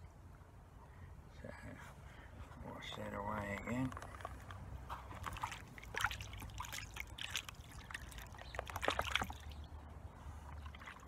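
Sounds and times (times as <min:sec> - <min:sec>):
water splashing in a pan: 0:05.2 - 0:09.6.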